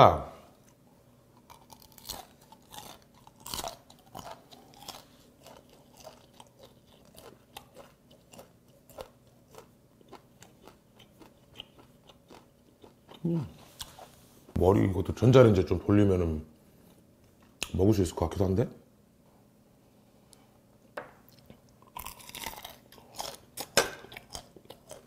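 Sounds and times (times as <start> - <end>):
wet crunchy chewing of shrimp: 0.7 - 14.2, 21.3 - 25.0.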